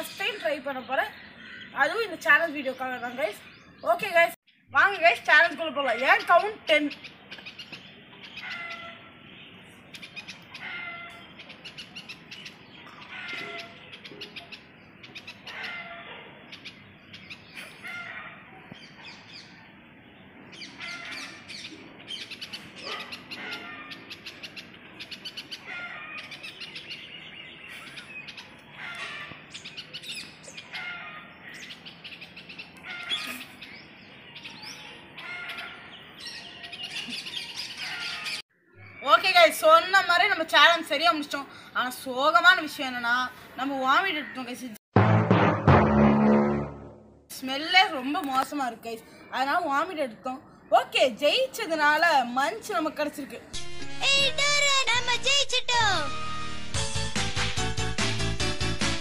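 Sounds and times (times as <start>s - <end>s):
birds chirping and calling: 0.0s - 44.8s.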